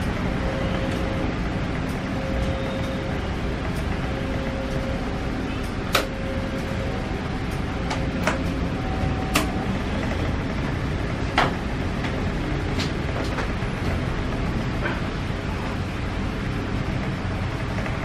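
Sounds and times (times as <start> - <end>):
steady rumble: 0.0 - 18.0.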